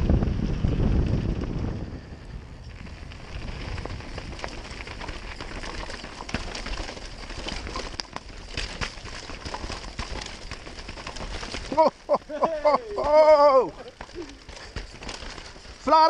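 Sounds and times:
wind on microphone: 0.0 - 5.7
bike clicks and rattles: 0.4 - 16.0
tyres crunching over dirt and stones: 2.7 - 16.0.

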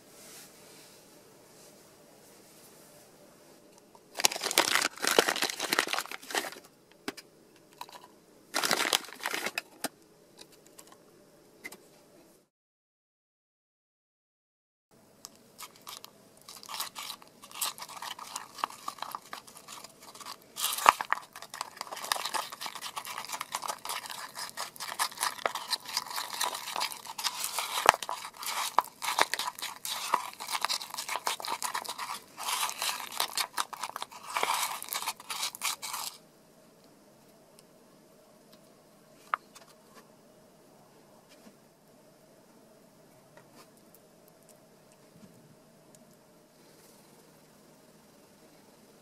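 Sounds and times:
metal tool scraping plastic cup: 15.6 - 36.2.

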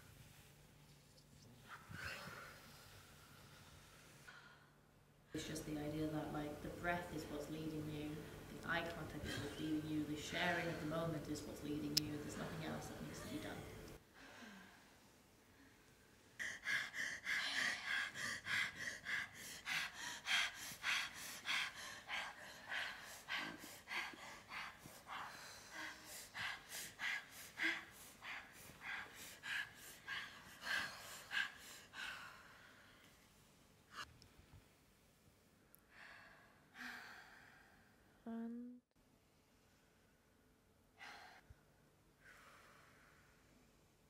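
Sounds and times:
people breathing hard: 14.0 - 33.2.

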